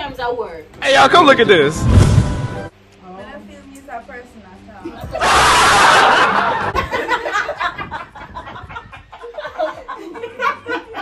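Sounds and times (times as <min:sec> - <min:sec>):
sudden loud rush of noise: 0:01.5 - 0:02.7
women laughing and snickering: 0:04.9 - 0:11.0.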